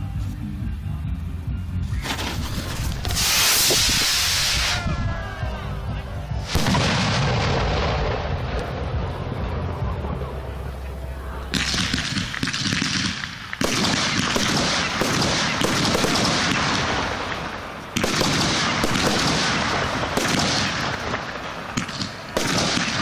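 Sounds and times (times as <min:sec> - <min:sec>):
firework crackling: 0:01.9 - 0:05.8, 0:06.4 - 0:23.0
firework shells bursting: 0:02.0 - 0:04.8, 0:11.6 - 0:23.0.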